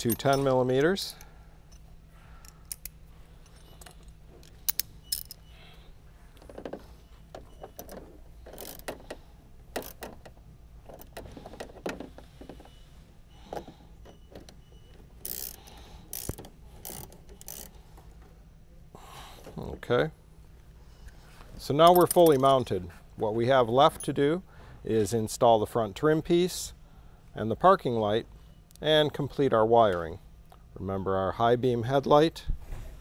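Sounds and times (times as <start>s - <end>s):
hand tools clinking: 0.0s - 5.4s, 21.8s - 22.7s
ratchet clicking: 3.8s - 5.4s, 7.8s - 11.7s, 15.2s - 17.8s.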